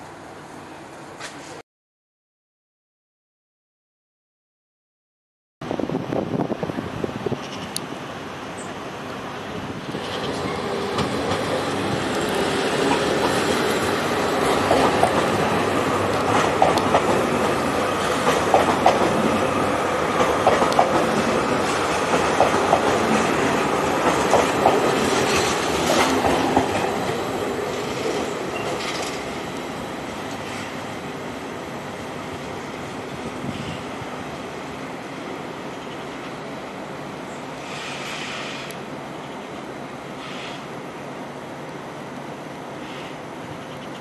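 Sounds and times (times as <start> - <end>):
train wheels clicking over track: 9.8 - 29.4, 37.6 - 38.8.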